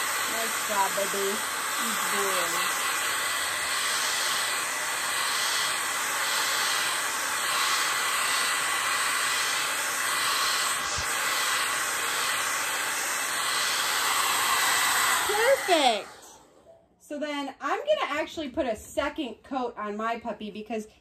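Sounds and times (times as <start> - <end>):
hair dryer running: 0.0 - 16.6.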